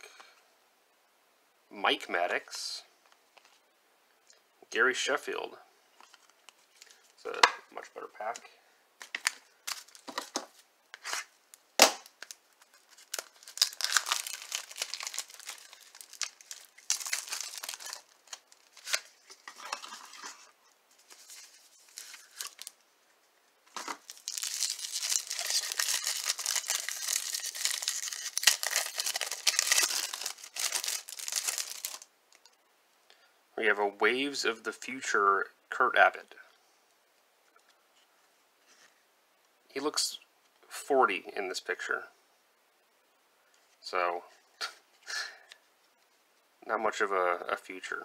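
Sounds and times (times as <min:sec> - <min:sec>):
cellophane wrapper crinkling: 0:09.0 - 0:22.8, 0:23.7 - 0:32.6.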